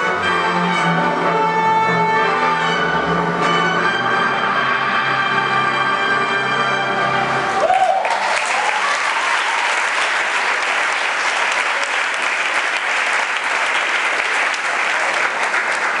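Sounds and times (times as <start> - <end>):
audience applauding: 7.6 - 16.0.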